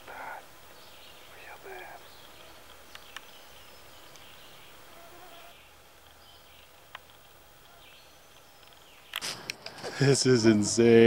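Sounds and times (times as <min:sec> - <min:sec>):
mosquitoes whining: 0:04.4 - 0:05.6.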